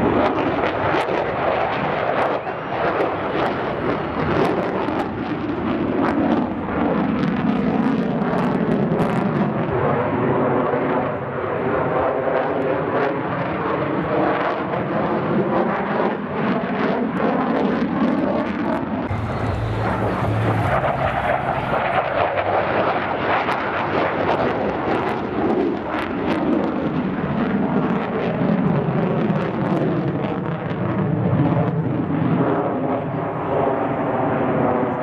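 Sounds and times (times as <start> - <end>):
jet engine roar with crackling: 0.0 - 35.0.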